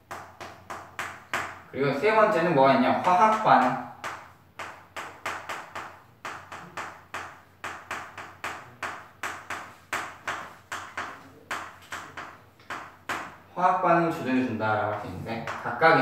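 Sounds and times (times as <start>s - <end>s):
chalk tapping and scratching on chalkboard: 0.0s - 1.6s, 3.0s - 13.4s.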